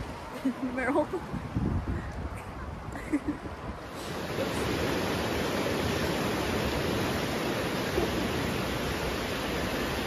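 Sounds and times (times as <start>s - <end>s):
waves washing onto stony beach: 3.8s - 10.0s.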